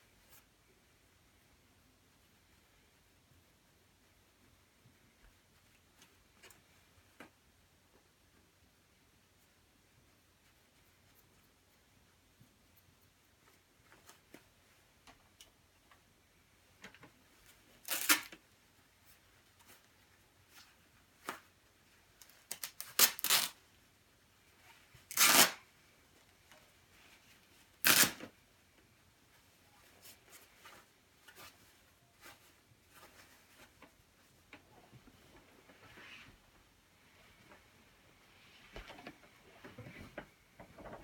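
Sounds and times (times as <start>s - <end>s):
fabric tearing: 17.8s - 18.4s, 22.5s - 23.6s, 25.1s - 25.6s, 27.8s - 28.3s.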